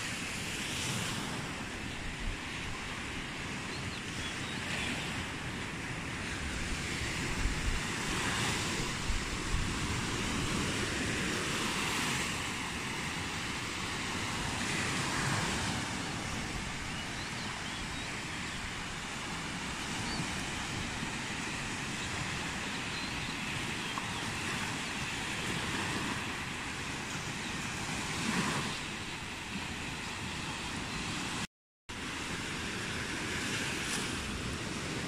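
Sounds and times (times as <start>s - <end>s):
waves washing on sandy beach: 0.0s - 35.0s
wind buffeting microphone: 6.4s - 18.0s.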